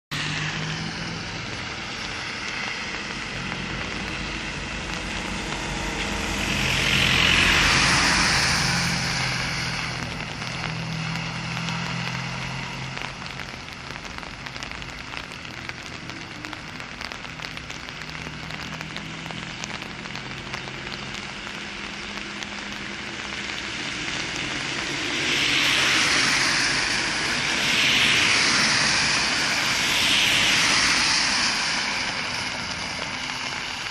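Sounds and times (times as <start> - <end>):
tyres hissing on wet road: 0.1 - 33.9
low engine hum: 0.2 - 33.9.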